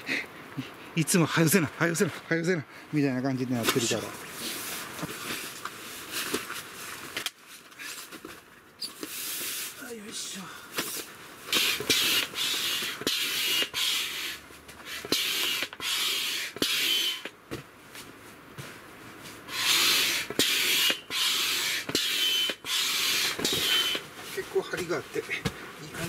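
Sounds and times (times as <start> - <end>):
hand air pump strokes: 10.8 - 17.3, 19.5 - 24.0.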